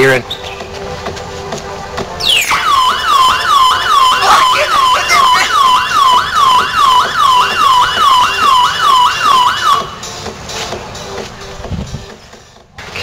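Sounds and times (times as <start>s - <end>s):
dance beat: 1.9s - 12.7s
siren-style electronic yelp: 2.2s - 10.0s.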